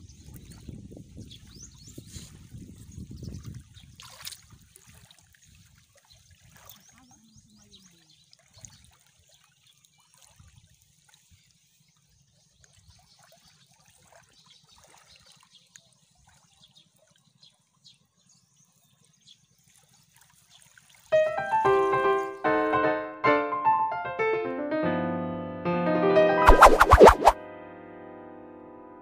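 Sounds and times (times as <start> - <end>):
water trickling among rocks: 3.0 - 10.7.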